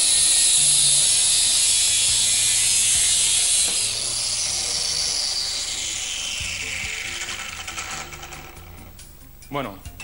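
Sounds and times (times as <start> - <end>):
angle grinder cutting steel tube: 0.0 - 9.1
grinder whine: 0.0 - 9.1.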